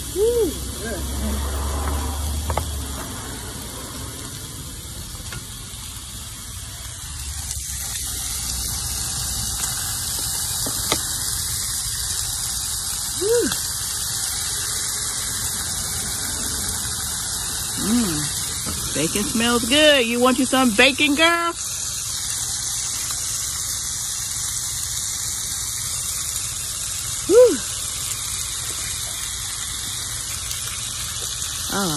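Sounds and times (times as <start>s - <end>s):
bacon sizzling in a skillet: 0.0s - 31.9s.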